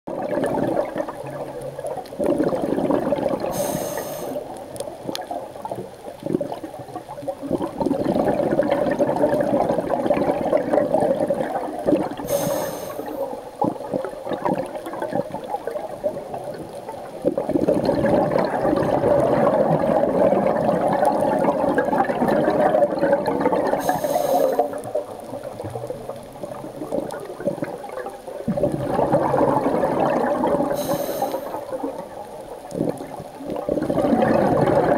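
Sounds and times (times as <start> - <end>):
exhaled bubbles gurgling: 0.1 - 34.9
regulator inhalation hiss: 3.5 - 4.4, 12.3 - 13.4, 23.8 - 24.8, 30.8 - 31.6.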